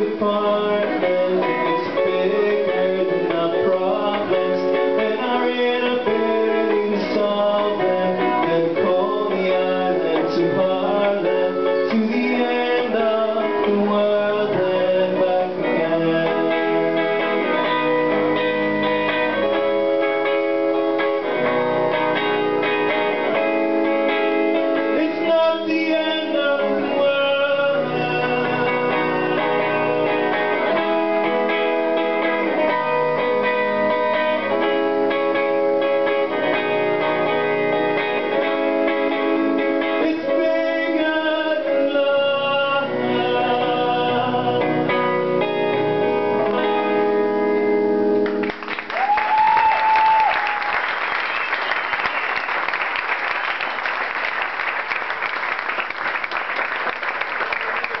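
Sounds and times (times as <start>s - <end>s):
man singing: 0.0s - 18.0s, 24.8s - 31.4s, 39.0s - 47.3s
electric guitar through amplifier: 0.0s - 58.0s
audience applause: 48.2s - 58.0s
call from the crowd: 48.5s - 58.0s.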